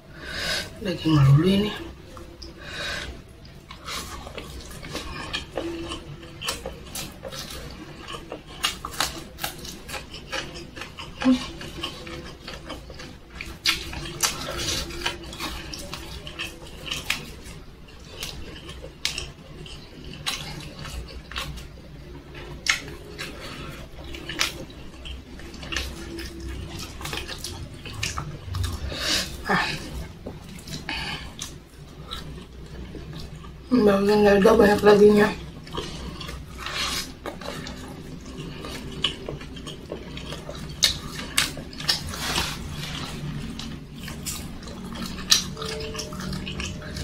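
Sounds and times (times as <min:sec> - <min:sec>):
wet chewing and lip smacking: 0:02.0 - 0:33.7, 0:35.4 - 0:47.0.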